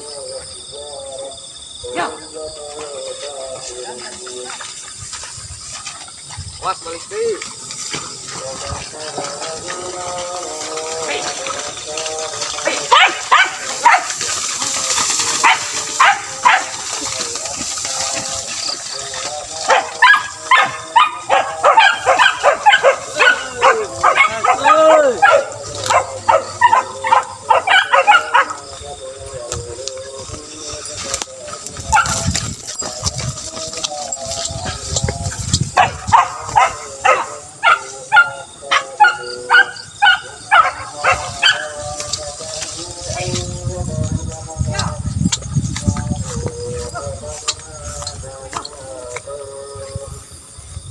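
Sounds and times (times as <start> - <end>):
beagles baying: 0.0 - 50.1
hounds barking: 1.6 - 43.8.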